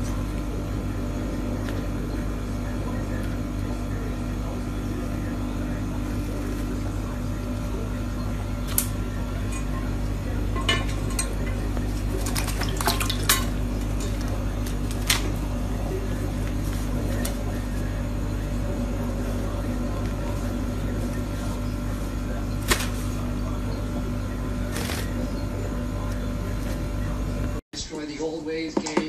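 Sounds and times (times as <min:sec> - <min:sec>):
steady low hum: 0:00.0 - 0:28.5.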